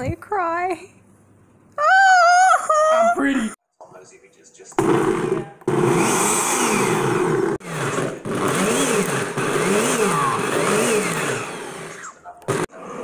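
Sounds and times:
blender motor chopping fruit: 0:04.8 - 0:13.0.

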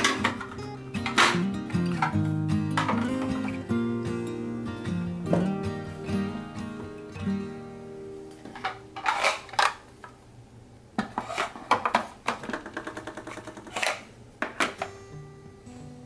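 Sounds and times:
plastic cases clacking: 0:00.0 - 0:03.6, 0:08.4 - 0:09.8, 0:11.0 - 0:14.9.

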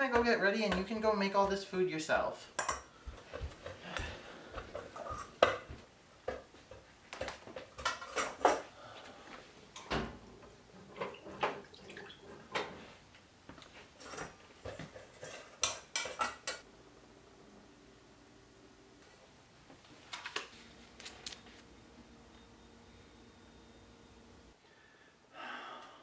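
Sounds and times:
metal cookware clanking: 0:14.0 - 0:16.6.

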